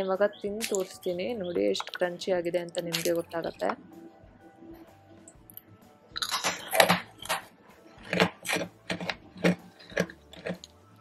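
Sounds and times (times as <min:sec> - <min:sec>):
candy crunching while chewed: 0:06.2 - 0:10.8.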